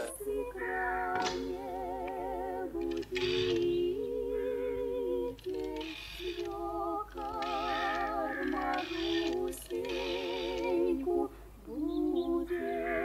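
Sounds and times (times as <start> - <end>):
person singing with vibrato: 0.0 - 13.0
rotary telephone dial whirring: 2.0 - 3.8, 5.3 - 10.8.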